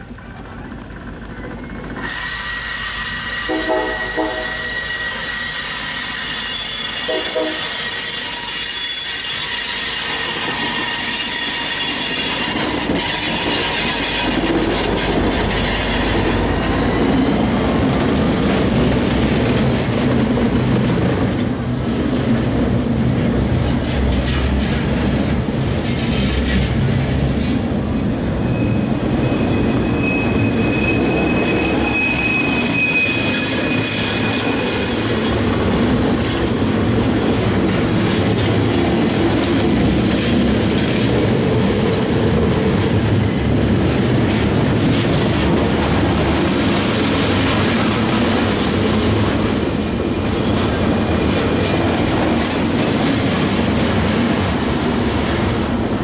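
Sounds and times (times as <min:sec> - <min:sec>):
freight train wheel noise: 0:00.0 - 0:56.0
high-pitched wheel squeal: 0:01.4 - 0:14.4, 0:15.0 - 0:26.2, 0:28.4 - 0:35.4.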